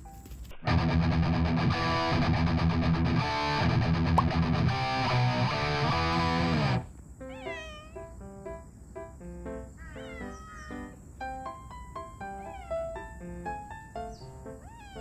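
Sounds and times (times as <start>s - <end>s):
cat meowing: 7.2s - 8.2s, 9.7s - 11.0s, 12.2s - 13.1s, 14.5s - 15.0s.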